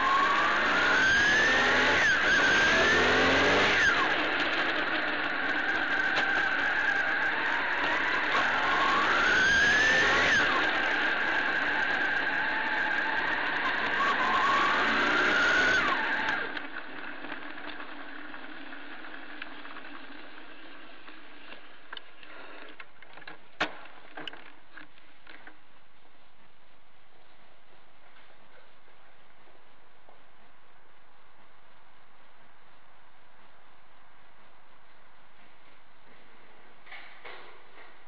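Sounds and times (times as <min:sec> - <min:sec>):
motorcycle engine revving: 0:00.0 - 0:24.4.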